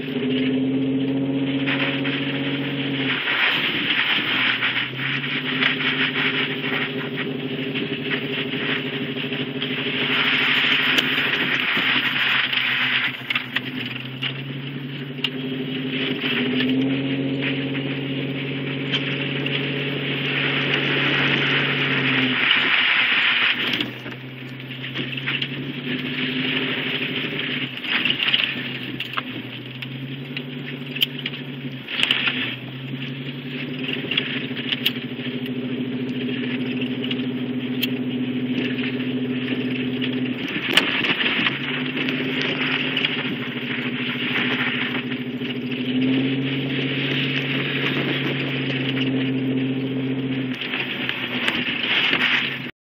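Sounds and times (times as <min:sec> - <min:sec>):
vehicle engine from inside cab: 0:00.0 - 0:52.8
sharp ticks: 0:17.8 - 0:46.0.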